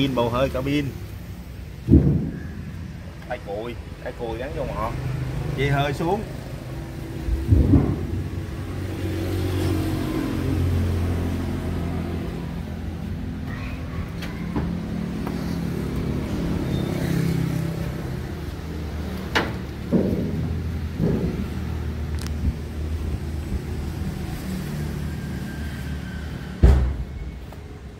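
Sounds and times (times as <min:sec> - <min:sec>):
knock: 0:19.9 - 0:21.7.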